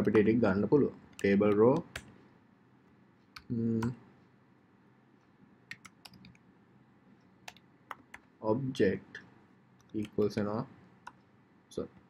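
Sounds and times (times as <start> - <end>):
computer keyboard typing: 1.1 - 2.2, 5.7 - 6.4, 7.5 - 8.3, 9.8 - 10.4.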